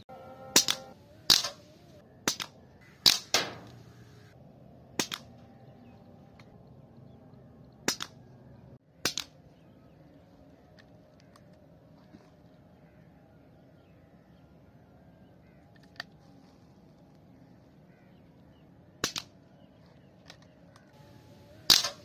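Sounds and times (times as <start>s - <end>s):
air rifle shots: 0.5s - 4.2s, 4.9s - 5.3s, 19.0s - 19.3s, 21.5s - 22.0s.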